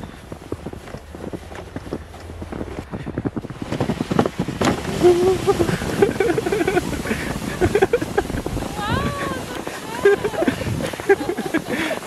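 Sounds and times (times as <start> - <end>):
footsteps crunching in snow: 0.0 - 12.0
sled dragging over snow: 0.0 - 12.0
wind on microphone: 0.0 - 12.0
person speaking: 4.9 - 5.9.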